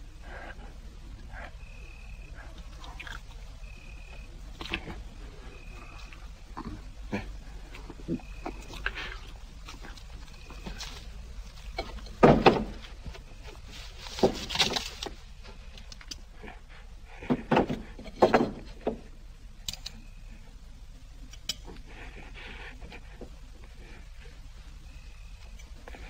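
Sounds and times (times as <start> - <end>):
dull wooden knocks and scuffs: 11.8 - 15.2.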